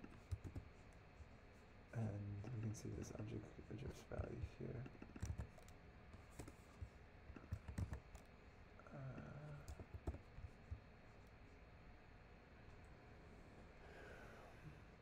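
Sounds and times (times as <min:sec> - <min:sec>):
computer keyboard clicks: 0:00.0 - 0:00.7, 0:04.8 - 0:06.6, 0:07.3 - 0:08.3, 0:09.6 - 0:10.5.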